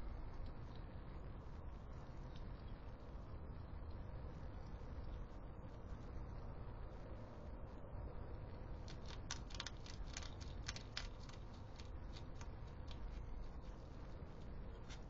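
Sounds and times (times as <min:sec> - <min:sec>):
hedgehog crunching food pellets: 0:08.5 - 0:15.0.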